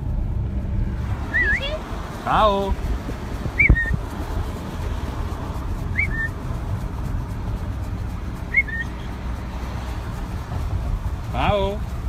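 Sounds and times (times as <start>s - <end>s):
car rumbling: 0.0s - 12.0s
person whistling: 5.9s - 6.3s, 8.5s - 8.9s.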